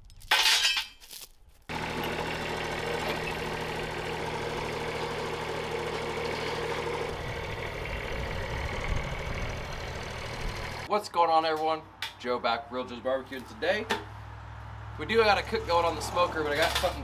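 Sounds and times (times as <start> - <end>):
tractor diesel engine running: 1.7 - 10.9.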